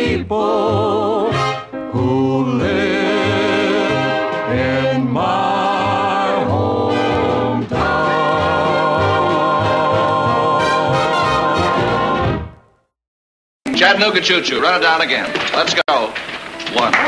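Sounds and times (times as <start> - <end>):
big band playing: 0.0 - 12.6
vocal group singing harmony: 0.0 - 12.6.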